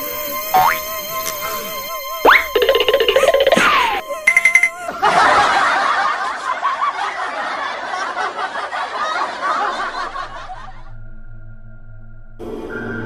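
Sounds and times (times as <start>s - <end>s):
droning music: 0.0s - 6.0s
cackling laughter: 2.6s - 10.9s.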